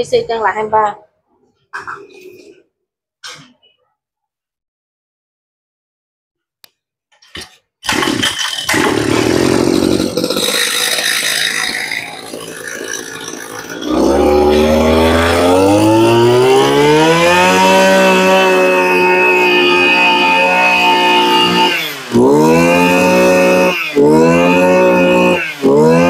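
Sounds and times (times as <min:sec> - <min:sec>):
brush cutter engine revving: 0:07.4 - 0:26.0.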